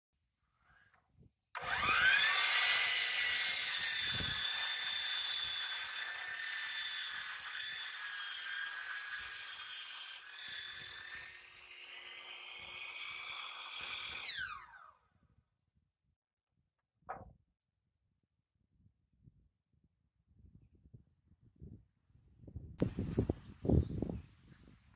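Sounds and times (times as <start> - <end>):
saw blade cutting wood: 1.6 - 14.9
chop saw motor whining: 1.6 - 15.0.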